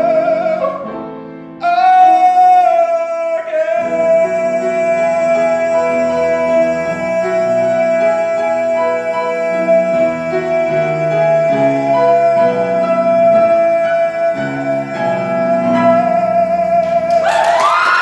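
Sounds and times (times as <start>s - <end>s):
piano chords: 0.0s - 18.0s
crowd whooping and cheering: 17.1s - 18.0s.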